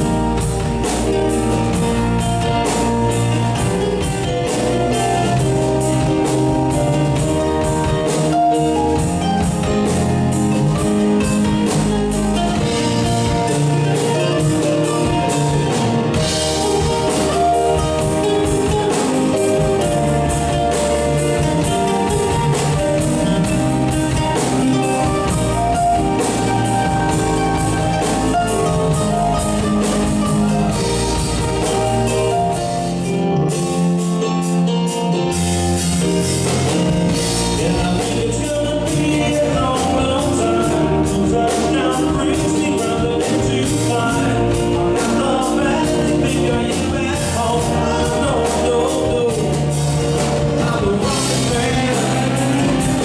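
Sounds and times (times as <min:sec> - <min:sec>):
fast classical guitar: 0:00.0 - 0:33.4
drums: 0:00.0 - 0:53.0
keyboard: 0:00.0 - 0:53.0
sustained bass notes: 0:00.0 - 0:53.0.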